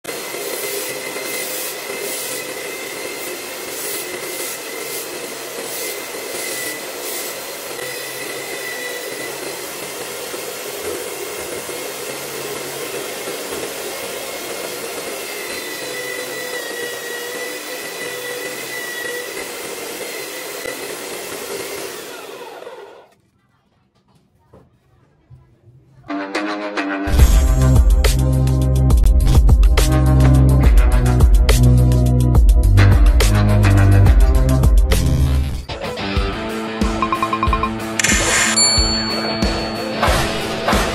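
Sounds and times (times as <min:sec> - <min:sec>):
sanding belt hissing on wood: 0:00.1 - 0:22.1
electric drill whining: 0:00.1 - 0:23.1, 0:38.0 - 0:39.8.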